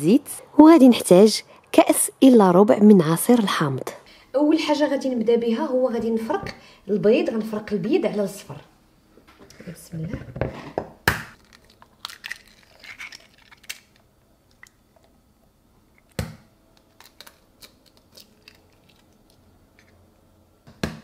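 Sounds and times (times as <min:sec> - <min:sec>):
eggshell cracking: 0:11.3 - 0:15.1, 0:15.9 - 0:19.4.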